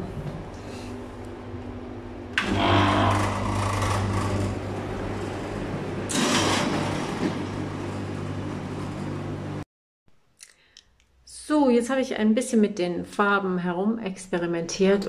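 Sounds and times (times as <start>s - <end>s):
dehumidifier compressor and fan hum: 0.0s - 9.6s
other dehumidifiers humming: 0.0s - 9.6s.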